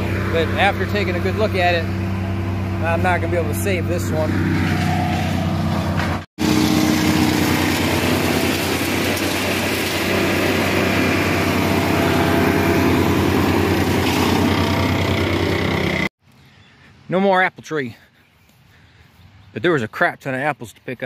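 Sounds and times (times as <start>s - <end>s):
wood chipper engine hum: 0.0s - 16.1s
chipped branches rushing out: 4.5s - 16.0s.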